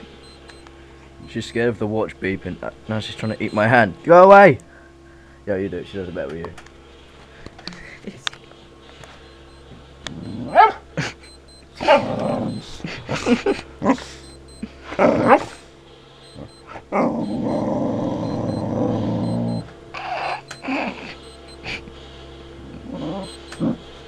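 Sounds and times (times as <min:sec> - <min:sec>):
faint high watch beeping: 0:00.0 - 0:01.6, 0:03.1 - 0:03.8, 0:09.2 - 0:15.6, 0:16.2 - 0:21.9, 0:23.0 - 0:23.8
dog yelping barks: 0:10.5 - 0:10.8, 0:11.8 - 0:12.4
dog growling: 0:11.8 - 0:13.0, 0:14.9 - 0:15.6, 0:16.7 - 0:21.8, 0:22.6 - 0:23.8.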